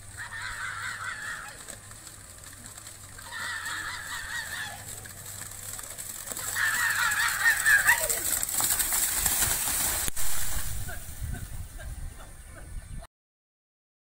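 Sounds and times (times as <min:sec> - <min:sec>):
splashing water: 0:01.2 - 0:11.4.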